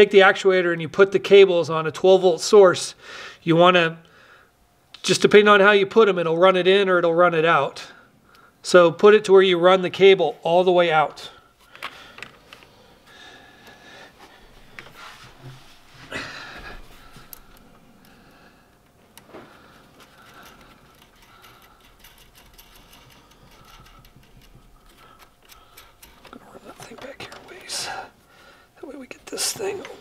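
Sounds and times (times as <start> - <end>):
steel cables clicking and rattling: 19.1 - 28.0.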